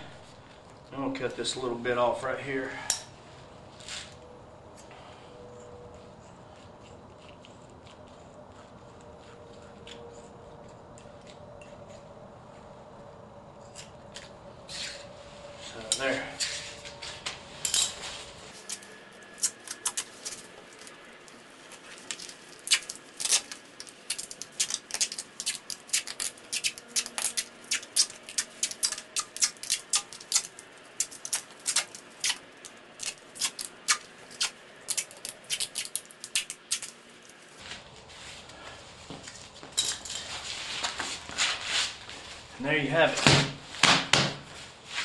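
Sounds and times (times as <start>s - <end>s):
sharp clicks of cutting rubber: 22.2s - 37.0s.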